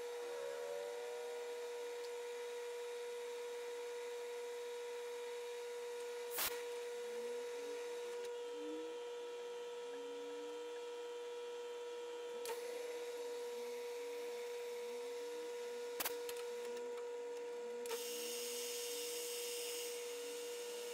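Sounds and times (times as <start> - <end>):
metal lathe whine: 0.0 - 6.0.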